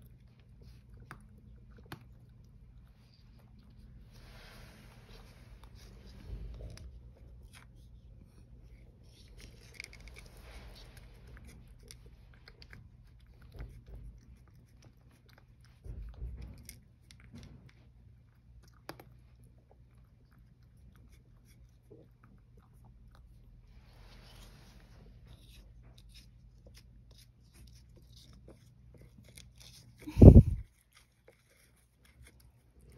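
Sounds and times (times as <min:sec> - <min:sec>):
cat crunching dry kibble: 0:05.1 - 0:23.4, 0:25.2 - 0:32.9.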